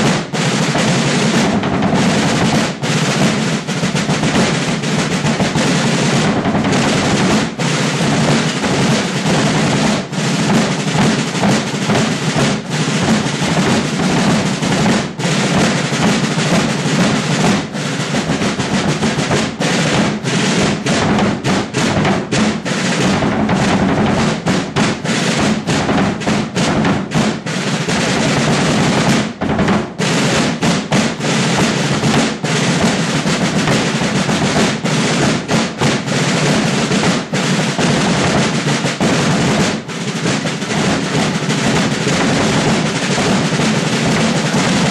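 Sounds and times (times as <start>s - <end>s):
bass drum beats: 0.0s - 0.3s, 16.0s - 27.4s
snare drum rolls: 0.0s - 44.9s.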